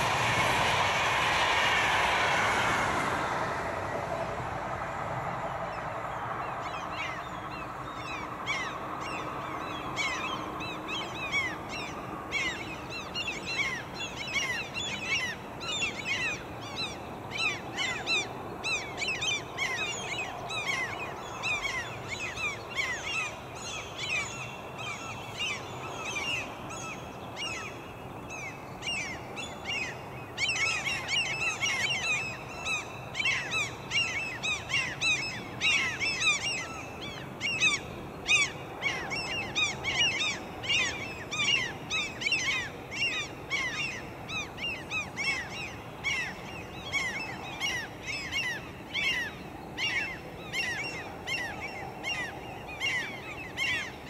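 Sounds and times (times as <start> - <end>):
train rumble: 0.0 - 25.1.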